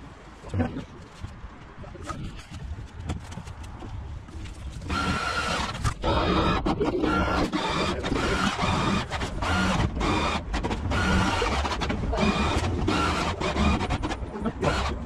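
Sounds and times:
electric motor whining under load: 0:04.9 - 0:15.0.

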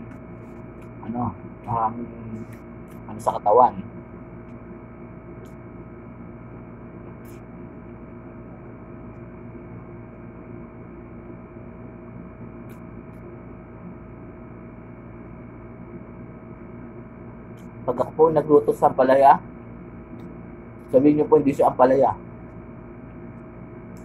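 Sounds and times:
steady electrical hum: 0:00.0 - 0:24.0.

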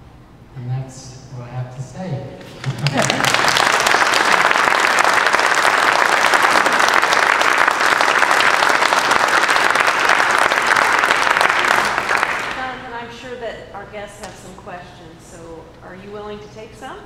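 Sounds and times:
audience applauding: 0:02.5 - 0:12.6.

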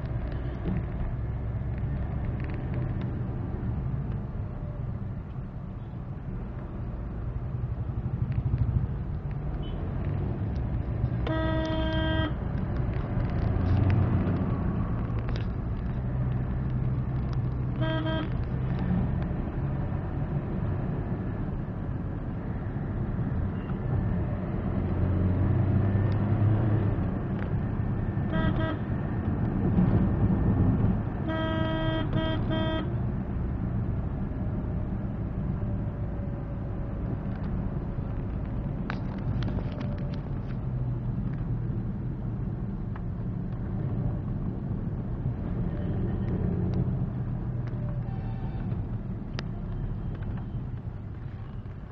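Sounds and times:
car engine and tyre rumble: 0:00.0 - 0:51.9
car horn toots: 0:11.2 - 0:12.4, 0:17.8 - 0:18.4, 0:28.3 - 0:28.9, 0:31.2 - 0:32.9.

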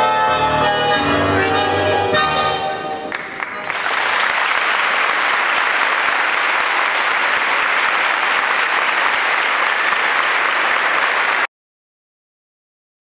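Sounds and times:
audience applauding: 0:03.1 - 0:11.5.

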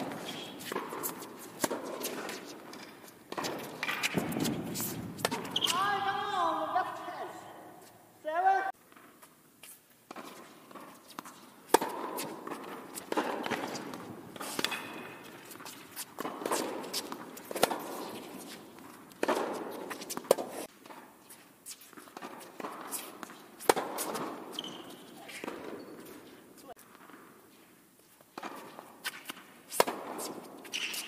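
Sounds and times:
tennis ball bouncing: 0:00.0 - 0:06.1, 0:10.1 - 0:21.1, 0:22.0 - 0:27.4, 0:28.4 - 0:31.0
racket striking tennis ball: 0:00.0 - 0:06.6, 0:10.1 - 0:21.1, 0:22.0 - 0:26.3, 0:28.4 - 0:31.0
shoes scuffing on court: 0:00.0 - 0:07.0, 0:08.9 - 0:31.0.

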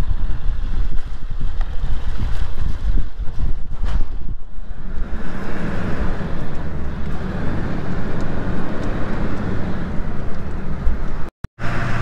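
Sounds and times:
tyres on gravel: 0:00.0 - 0:12.0
diesel engine drone: 0:04.6 - 0:12.0.

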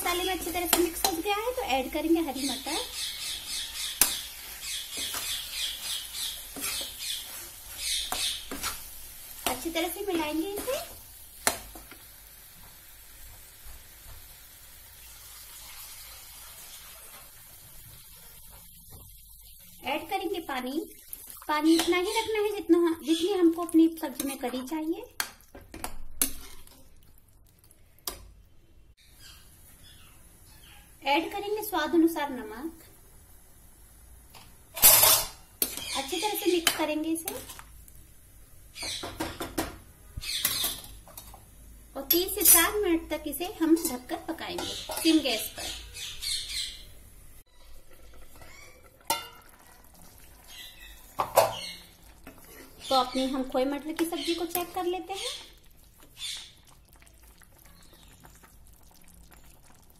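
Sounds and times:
spatula stirring in a pan: 0:00.1 - 0:28.0, 0:34.9 - 0:37.8, 0:47.4 - 0:59.9.

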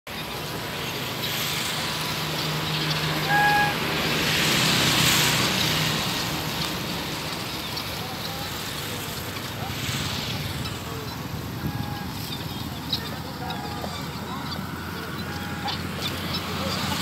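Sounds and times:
motor vehicle passing: 0:00.1 - 0:17.0
short horn beep: 0:03.2 - 0:03.8.

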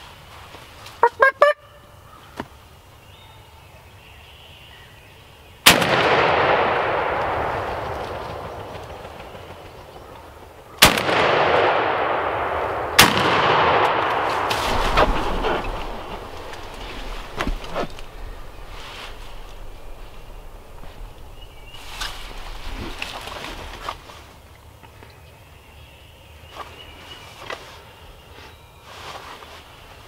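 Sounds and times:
turkey gobbling: 0:01.0 - 0:01.7
loud crack with rushing noise: 0:05.8 - 0:21.3.

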